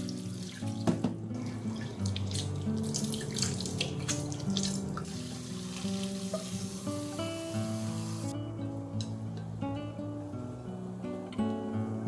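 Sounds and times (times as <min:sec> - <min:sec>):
tap water running into sink: 0:00.0 - 0:08.3.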